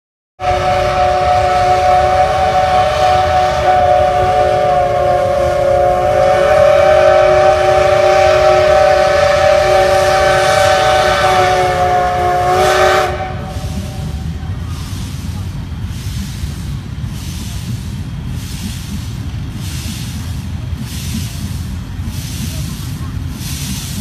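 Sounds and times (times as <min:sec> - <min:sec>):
steam locomotive whistle: 0:00.4 - 0:14.4
low rumble: 0:00.5 - 0:24.0.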